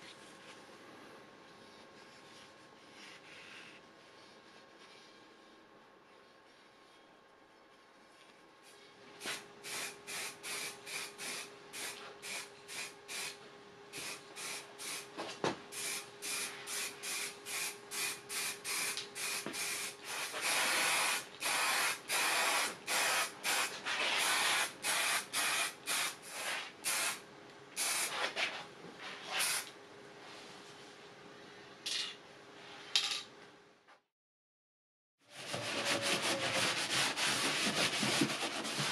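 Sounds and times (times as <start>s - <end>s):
faint steady hum: 0.0s - 20.2s
spray paint can hissing: 15.8s - 27.2s.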